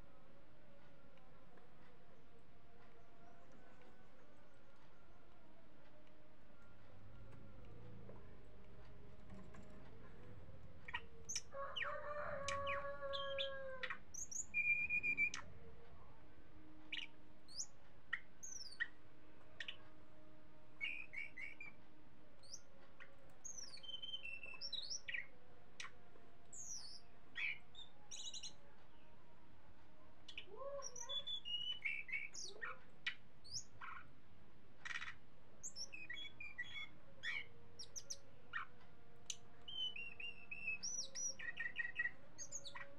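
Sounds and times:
songbird chirps whistles and trills: 0:01.6 - 0:16.2, 0:16.8 - 0:29.3, 0:30.2 - 0:34.2, 0:34.8 - 0:42.9.

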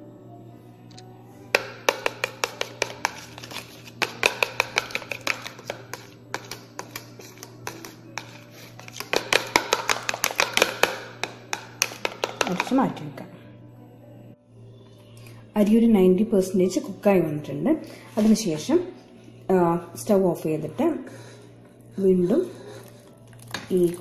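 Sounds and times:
spoon beating eggs in bowl: 0:01.5 - 0:12.9.

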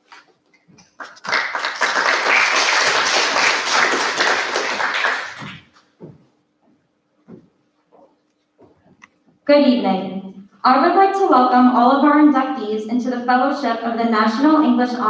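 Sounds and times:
small audience applauding: 0:00.8 - 0:05.8
light taps: 0:06.0 - 0:09.4.

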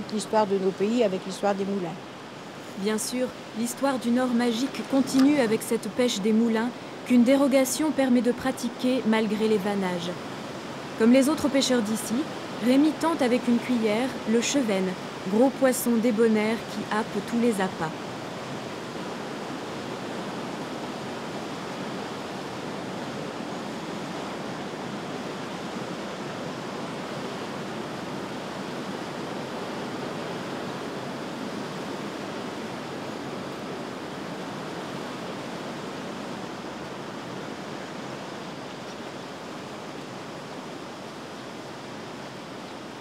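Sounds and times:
river water rushing: 0:00.0 - 0:43.0.

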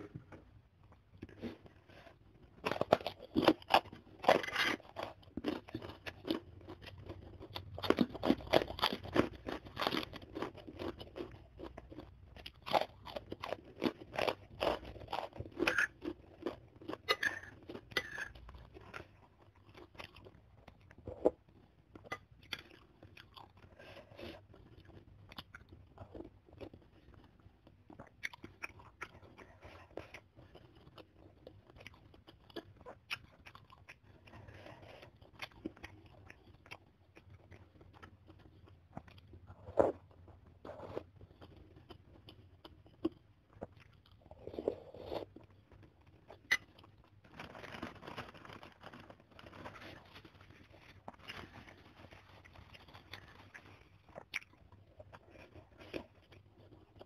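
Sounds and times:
crunching and chewing crackers: 0:00.0 - 0:57.0.

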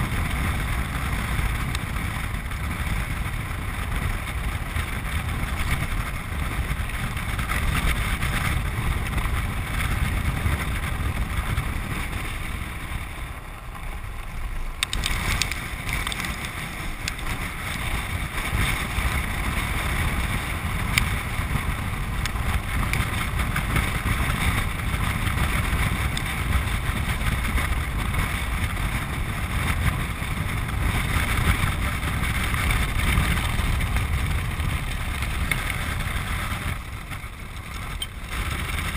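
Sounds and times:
wheels rumbling on lakebed: 0:00.0 - 0:38.9
wind buffeting microphone: 0:00.0 - 0:38.9
sharp clicks: 0:14.8 - 0:16.2.

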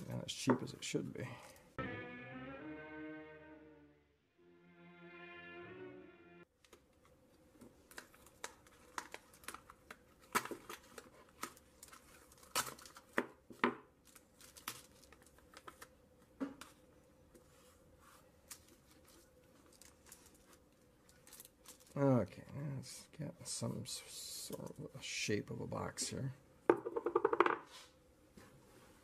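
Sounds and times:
tape ripping and crinkling: 0:07.8 - 0:13.2, 0:14.0 - 0:15.9, 0:18.5 - 0:22.0.

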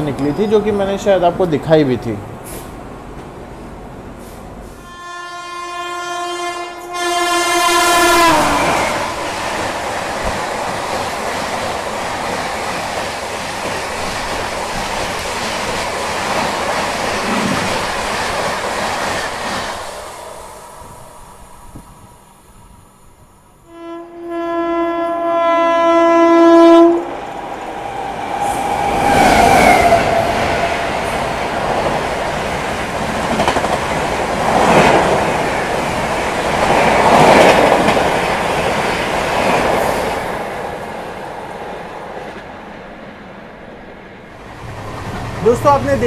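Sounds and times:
train rushing past: 0:00.0 - 0:46.0
locomotive horn blast: 0:04.8 - 0:09.3, 0:23.6 - 0:27.1
train wheel clatter: 0:31.1 - 0:40.3.

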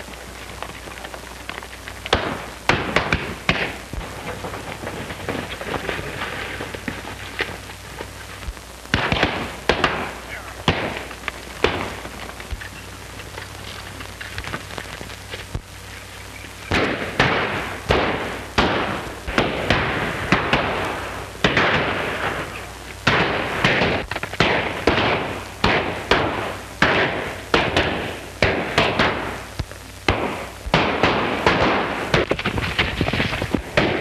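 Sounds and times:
echoing gunshots: 0:02.1 - 0:06.8, 0:08.9 - 0:12.6, 0:16.7 - 0:29.5, 0:30.1 - 0:34.0.

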